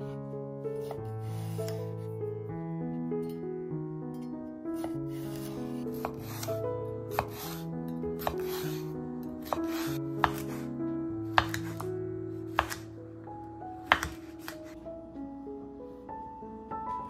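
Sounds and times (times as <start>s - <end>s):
knife knocking on cutting board: 13.9s - 14.3s.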